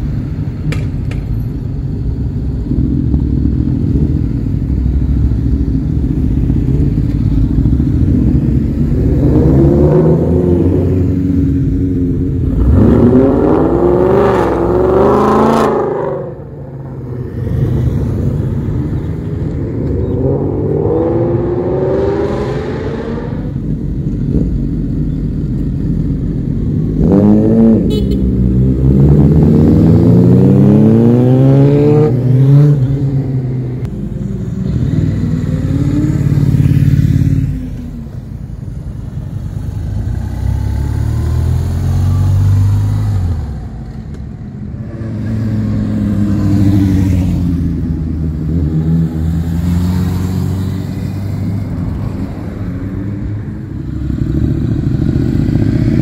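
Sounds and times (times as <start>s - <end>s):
motorcycles revving past: 39.3s - 44.0s, 44.7s - 56.0s.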